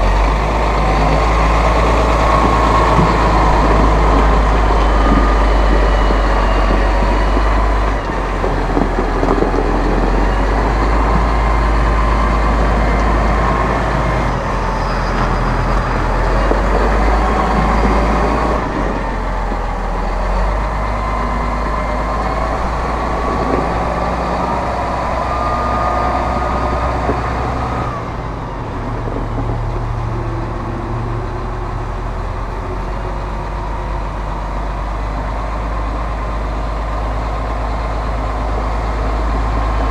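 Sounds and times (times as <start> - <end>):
thin engine whine: 0.0 - 39.9
tractor diesel engine drone: 0.0 - 39.9.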